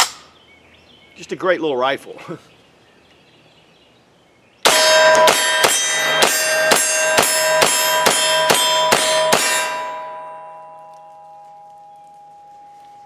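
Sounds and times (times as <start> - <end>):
steel targets ringing: 4.6 - 13.0.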